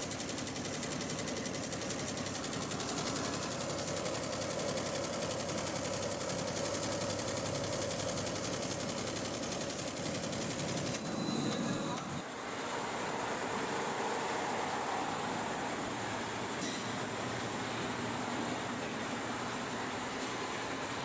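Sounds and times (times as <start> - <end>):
embroidery machine clatter: 0.0 - 12.3.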